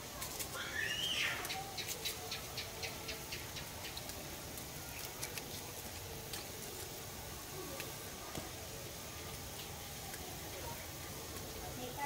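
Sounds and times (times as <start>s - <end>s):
soup boiling and bubbling: 0.0s - 12.0s
sharp pops and ticks: 3.6s - 6.9s.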